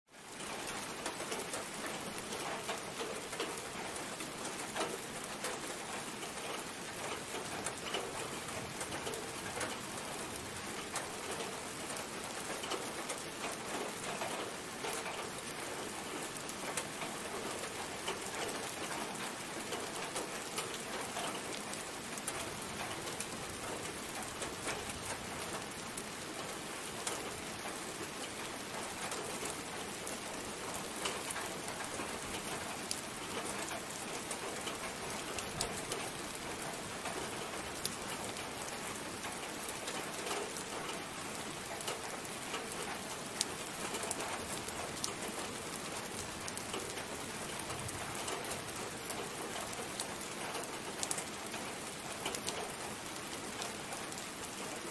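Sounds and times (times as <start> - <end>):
close raindrops striking: 0.1 - 54.9
steady rain falling: 0.1 - 54.9.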